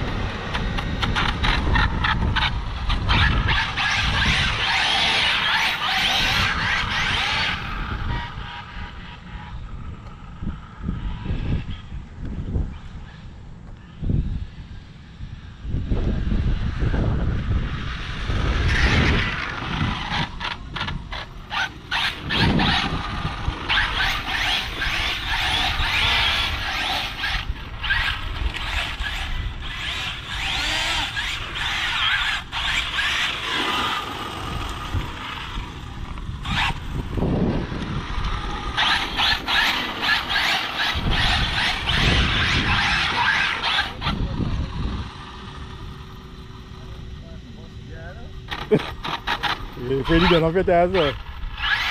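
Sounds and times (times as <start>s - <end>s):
rc car whistling whine: 21.1s - 46.7s, 48.1s - 51.9s.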